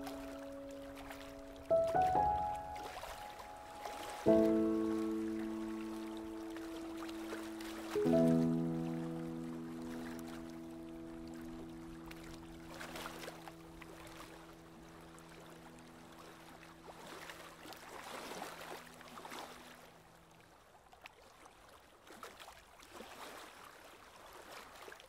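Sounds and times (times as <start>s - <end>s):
faint sustained music chord: 0.0s - 19.9s
faint watery swishing: 0.0s - 25.0s.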